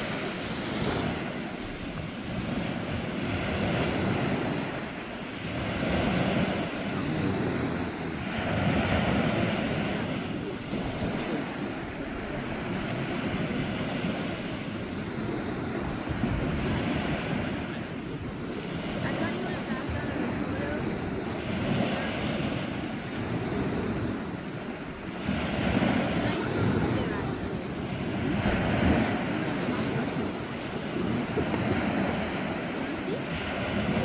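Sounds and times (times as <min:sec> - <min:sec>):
small waves breaking on sand: 0:00.0 - 0:34.0
wind buffeting microphone: 0:00.0 - 0:34.0.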